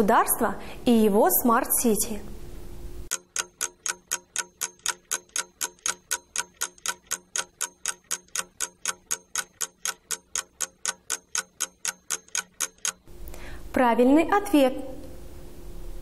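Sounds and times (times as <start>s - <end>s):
clock ticking quickly: 3.1s - 13.1s.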